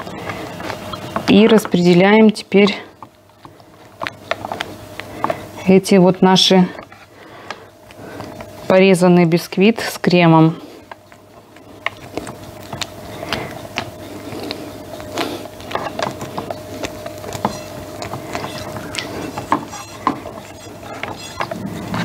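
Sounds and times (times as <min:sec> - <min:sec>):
faint hum: 0:00.0 - 0:22.0
spatula scraping metal ring: 0:17.3 - 0:22.0.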